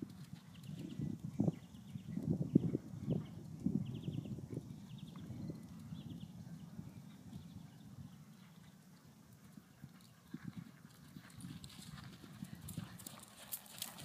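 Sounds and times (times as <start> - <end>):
horse hooves cantering on sand: 0.0 - 4.1, 8.1 - 14.0.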